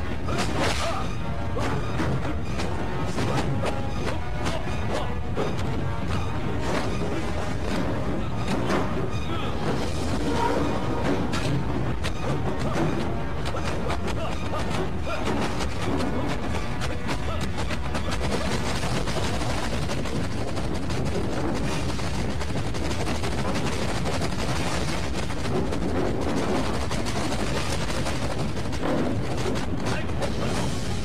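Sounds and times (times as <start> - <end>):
clatter of fight punches: 11.2 - 30.7.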